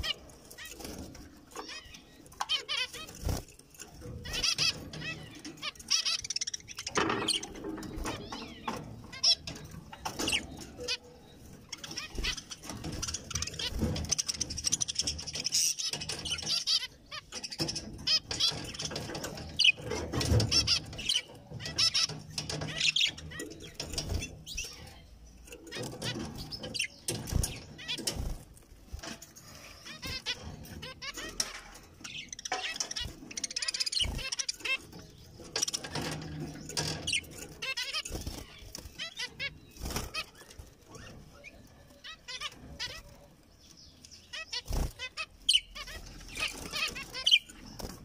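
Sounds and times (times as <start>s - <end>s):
light clicks and knocks in cage: 0.4s - 41.2s.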